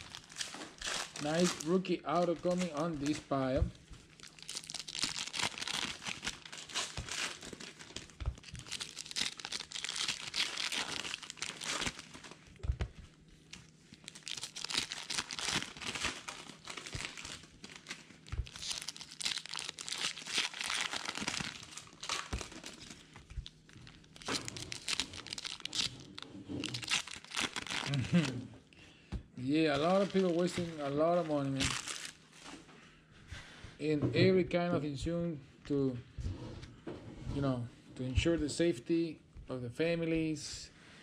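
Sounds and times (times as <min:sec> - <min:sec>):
foil wrapper crinkling and tearing: 0:00.0 - 0:12.6, 0:13.4 - 0:28.4, 0:29.7 - 0:32.2.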